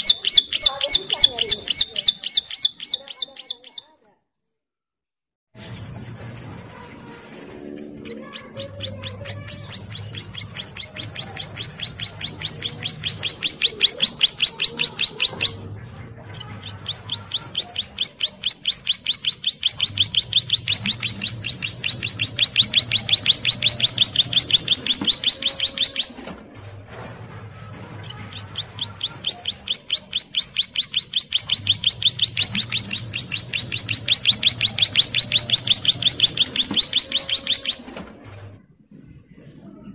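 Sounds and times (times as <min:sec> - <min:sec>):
bird singing rattling trills: 0:00.0 - 0:03.8, 0:08.2 - 0:15.6, 0:16.4 - 0:26.2, 0:28.3 - 0:37.9.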